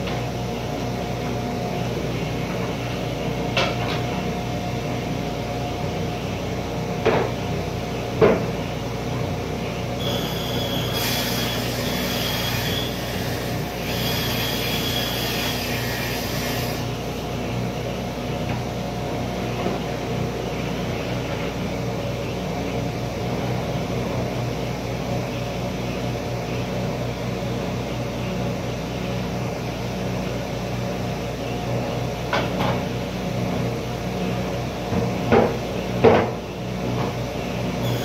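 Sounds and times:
saw blade cutting board: 10.0s - 16.9s
woodworking saw running: 10.0s - 17.3s.

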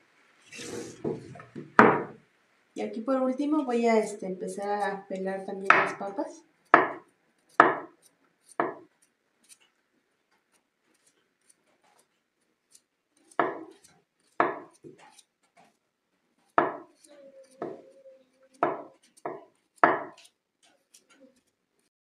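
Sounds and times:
knife knocking on wooden board: 1.0s - 2.2s, 6.8s - 7.0s, 7.6s - 7.9s, 8.6s - 8.9s, 13.4s - 13.8s, 14.4s - 15.0s, 16.6s - 16.9s, 17.6s - 17.8s, 18.6s - 20.3s.

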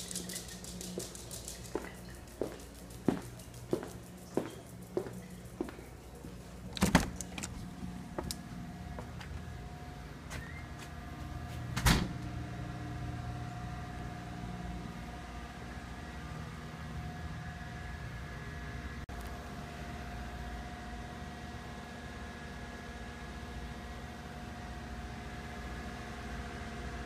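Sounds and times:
low mechanical hum: 0.0s - 27.0s
door thump: 11.8s - 12.2s.

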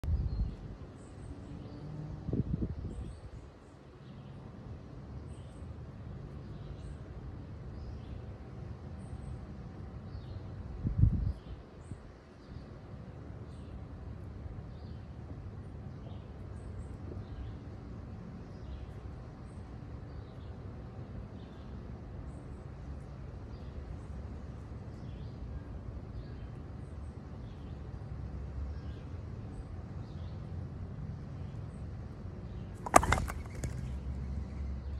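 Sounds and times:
stone slab crashing down: 32.8s - 34.0s.

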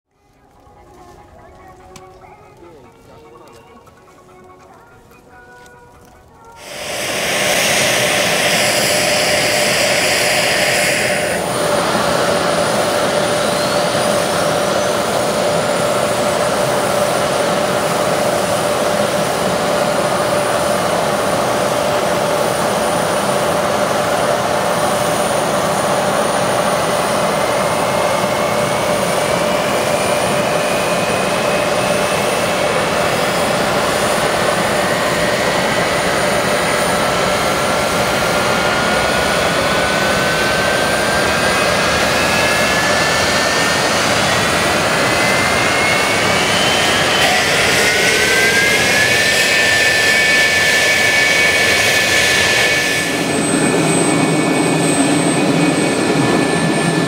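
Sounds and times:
jet engine whine and rush: 2.0s - 57.0s
jet engine spooling up: 6.4s - 57.0s
harsh hiss: 6.6s - 13.2s.

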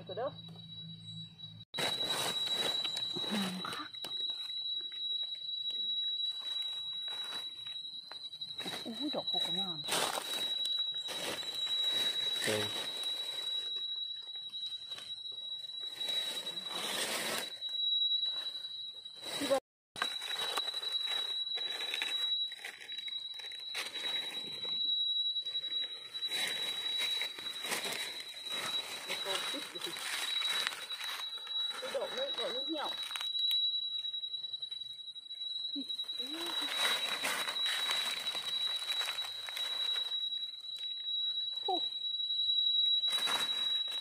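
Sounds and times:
high-pitched insect whine: 0.0s - 44.0s
thin high-pitched tone: 0.0s - 44.0s
dry leaves rustling and crackling: 1.8s - 3.5s, 8.6s - 13.5s, 16.0s - 17.4s, 19.4s - 24.4s, 26.3s - 33.3s, 36.2s - 40.1s, 43.1s - 44.0s.

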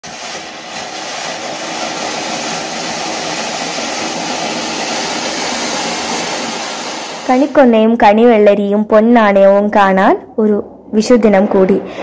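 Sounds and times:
firework hissing: 0.0s - 8.0s.

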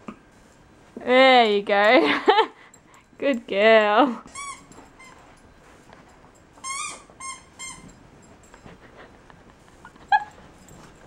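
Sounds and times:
dog squeaking: 4.3s - 5.2s, 6.6s - 8.0s, 10.0s - 10.4s.

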